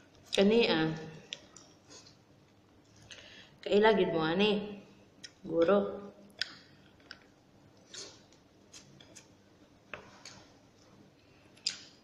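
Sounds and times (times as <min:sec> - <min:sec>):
person eating with hands: 0:06.3 - 0:12.0.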